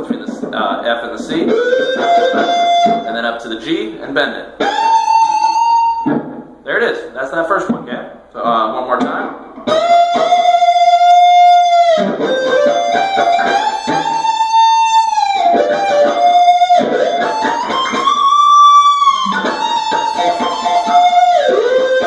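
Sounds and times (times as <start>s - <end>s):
electric guitar lead solo: 1.4s - 3.1s, 4.6s - 6.5s, 9.3s - 22.0s.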